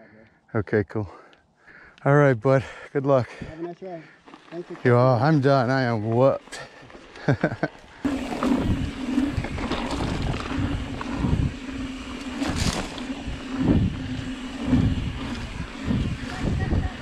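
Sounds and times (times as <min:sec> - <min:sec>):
tyres rumbling over dirt: 0:03.4 - 0:17.0
steady low hum: 0:07.8 - 0:17.0
wind buffeting microphone: 0:08.0 - 0:17.0.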